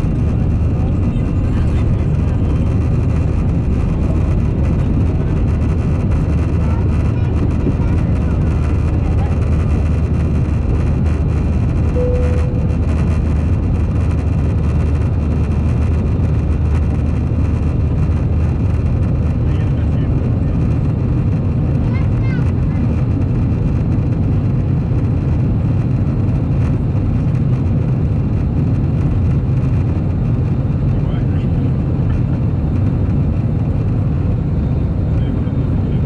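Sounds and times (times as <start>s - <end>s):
jet engines droning in cabin: 0.0s - 36.0s
short single tone: 11.9s - 13.0s.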